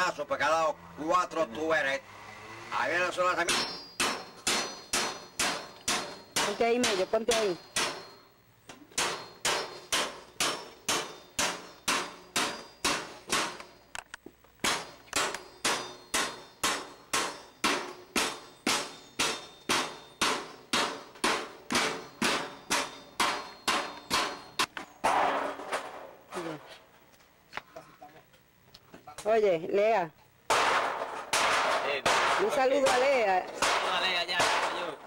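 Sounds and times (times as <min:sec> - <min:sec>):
metallic banging: 0:03.0 - 0:14.0, 0:14.6 - 0:26.3, 0:30.5 - 0:35.0.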